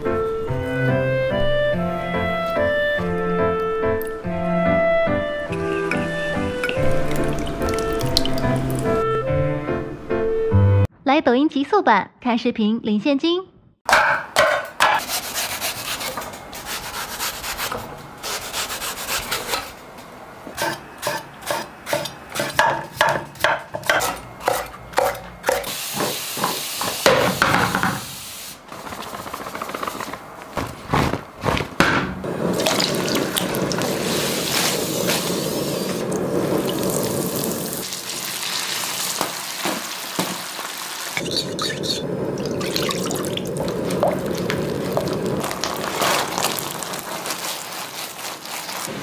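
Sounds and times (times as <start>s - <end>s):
oil bubbling and sizzling: 5.4s - 9.1s, 32.3s - 49.0s.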